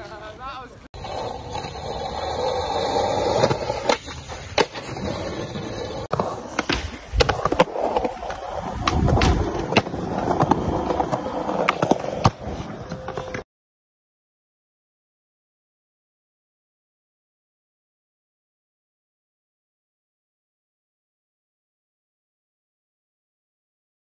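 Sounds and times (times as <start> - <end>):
skateboard wheels rolling on concrete: 0.0 - 13.5
skateboard clacks: 6.1 - 13.4.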